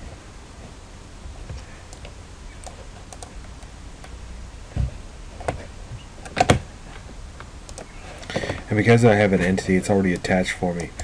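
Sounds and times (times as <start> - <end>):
mouse and keyboard clicks: 7.7 - 7.9.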